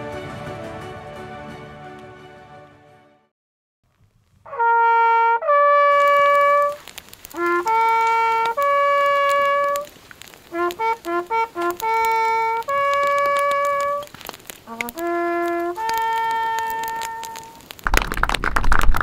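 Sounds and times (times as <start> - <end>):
background music: 0.0 - 3.3
brass hunting horn calls: 4.5 - 9.9, 10.5 - 14.1, 14.7 - 17.6.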